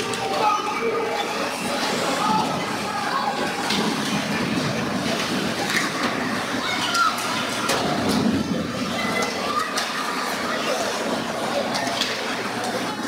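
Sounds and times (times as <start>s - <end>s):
spectators' voices: 0.0s - 13.0s
hockey sticks and puck clacking: 5.1s - 6.2s.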